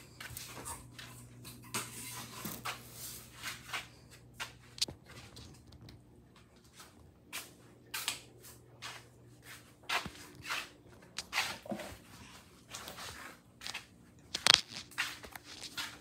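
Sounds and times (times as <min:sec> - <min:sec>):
rustles and crunches: 0:02.2 - 0:06.1, 0:09.9 - 0:16.0.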